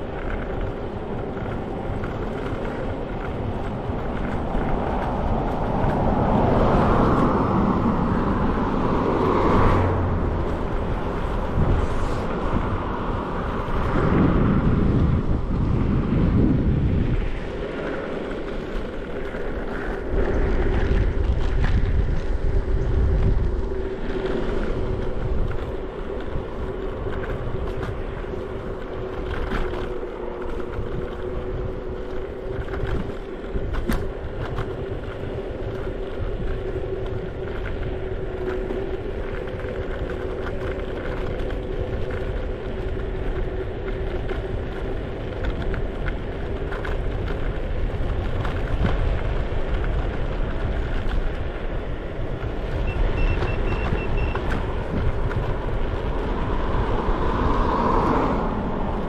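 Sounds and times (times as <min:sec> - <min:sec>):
scooter motor whine: 0:00.0 - 0:59.0
wind rushing over microphone: 0:00.0 - 0:59.0.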